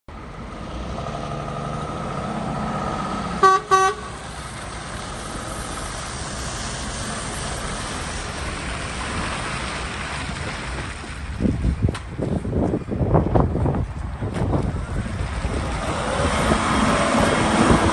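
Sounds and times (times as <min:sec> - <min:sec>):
tyres hissing on wet ground: 0:02.6 - 0:11.5
truck horn toots: 0:03.4 - 0:04.2.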